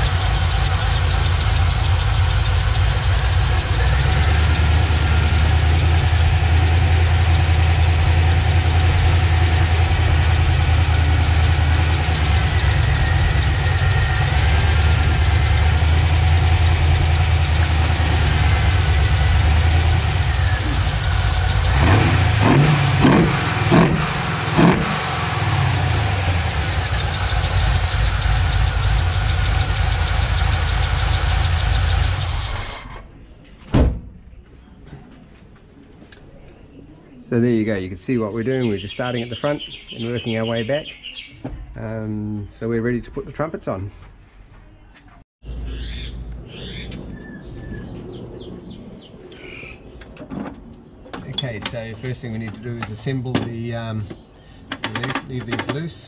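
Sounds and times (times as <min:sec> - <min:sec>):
engine idling: 0:00.0 - 0:33.0
engine revving with throttle blips: 0:00.0 - 0:33.1.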